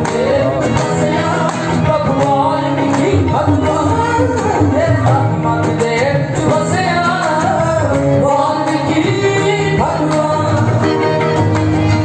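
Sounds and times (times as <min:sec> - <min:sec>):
woman singing into a microphone: 0:00.0 - 0:11.2
sustained instrumental accompaniment: 0:00.0 - 0:12.0.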